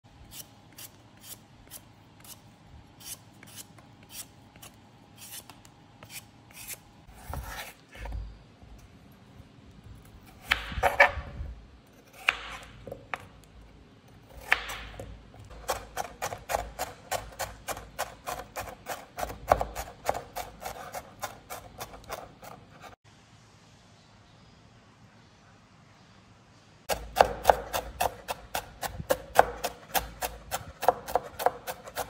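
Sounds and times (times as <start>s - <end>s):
knife cutting raw potato: 0.2s - 8.3s, 10.0s - 11.3s, 11.9s - 13.4s, 14.1s - 23.0s, 26.9s - 32.0s
rapid chopping on cutting board: 14.4s - 22.6s, 26.9s - 32.0s.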